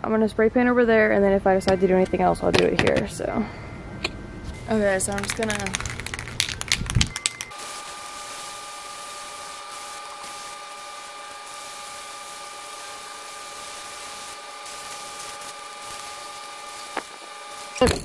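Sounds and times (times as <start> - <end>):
spray paint can hissing: 5.1 - 17.8.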